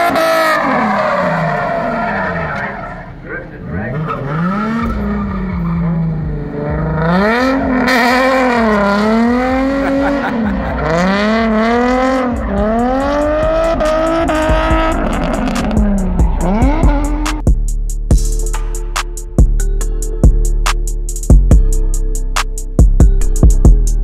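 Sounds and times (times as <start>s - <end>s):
tires screeching: 0.0s - 17.5s
car engine revving: 0.0s - 17.6s.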